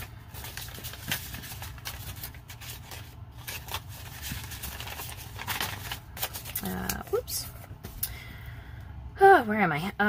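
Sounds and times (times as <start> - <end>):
paper banknotes rustling: 0.0 - 7.6.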